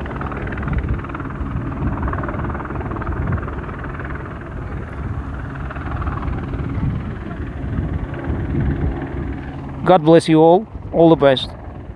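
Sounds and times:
helicopter flying overhead: 0.0s - 11.9s.

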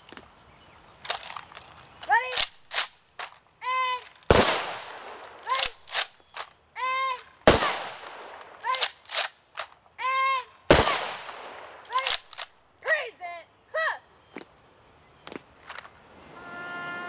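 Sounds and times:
rifles being handled clicks: 0.0s - 10.0s, 11.2s - 12.9s, 15.2s - 16.0s
person shouting commands: 3.6s - 4.1s, 5.4s - 5.8s, 6.8s - 7.8s, 10.0s - 11.0s, 12.8s - 14.0s
rifle volleys echoing: 4.0s - 6.6s, 7.4s - 9.8s, 10.7s - 12.6s.

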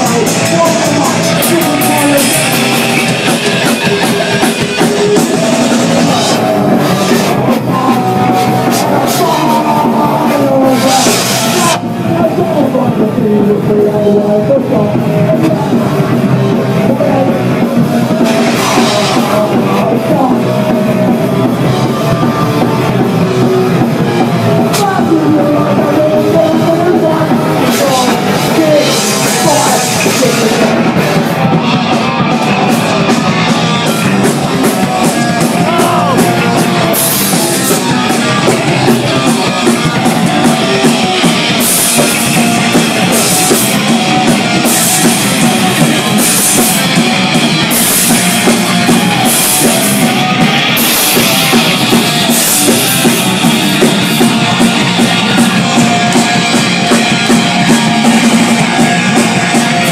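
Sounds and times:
punk rock band playing: 0.0s - 59.9s.

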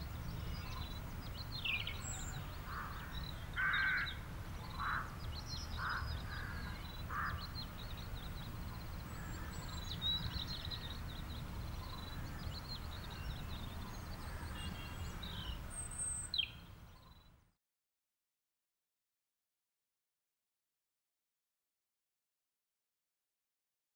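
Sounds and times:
birds chirping: 0.0s - 17.4s.

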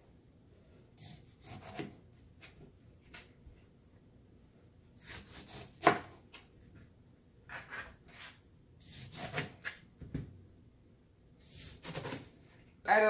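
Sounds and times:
knife slicing pineapple: 1.0s - 2.6s, 5.0s - 6.4s, 7.5s - 9.8s, 11.4s - 12.3s.

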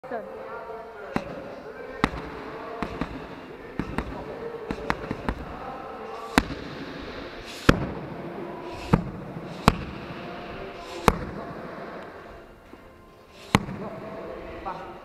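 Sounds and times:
punches and kicks hitting pads: 2.0s - 5.6s, 6.3s - 6.8s, 8.8s - 10.0s, 11.0s - 11.4s, 13.5s - 13.9s.

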